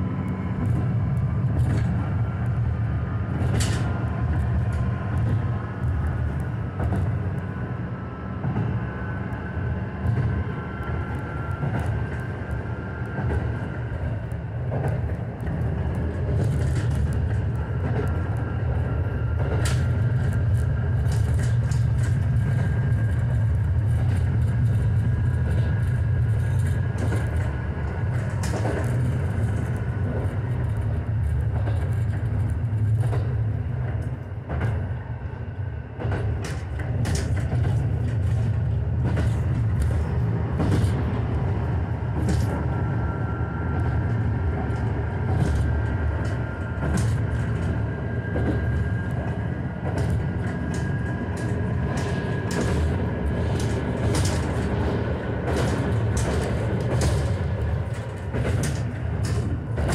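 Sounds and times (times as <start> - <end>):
train rumbling on rails: 0.0 - 59.9
running gear clicks and clacks: 3.3 - 7.1, 13.0 - 34.8, 36.0 - 41.1, 42.1 - 42.7, 43.8 - 59.9.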